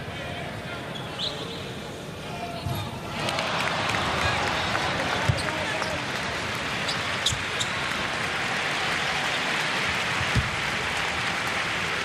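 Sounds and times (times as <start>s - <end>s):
arena crowd din: 0.0s - 12.0s
basketball bounce: 5.3s - 5.5s.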